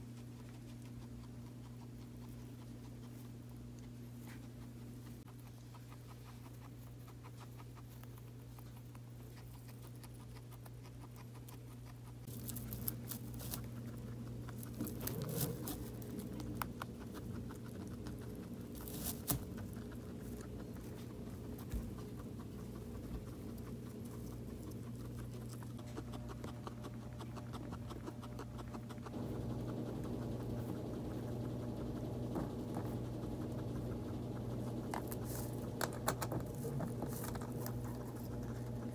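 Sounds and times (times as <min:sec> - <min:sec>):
guinea pigs rustling and chewing hay: 0:00.0 - 0:38.9
low hum: 0:12.2 - 0:38.9.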